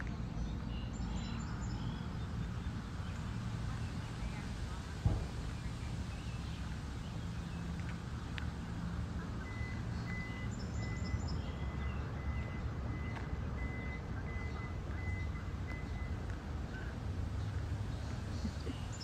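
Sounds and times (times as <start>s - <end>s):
reversing alarm beeping: 9.4s - 16.9s.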